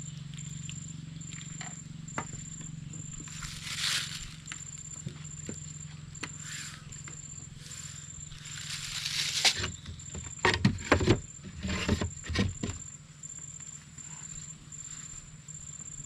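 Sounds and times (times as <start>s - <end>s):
high pulsing insect-like tone: 0.0s - 10.5s
steady low hum: 0.0s - 16.0s.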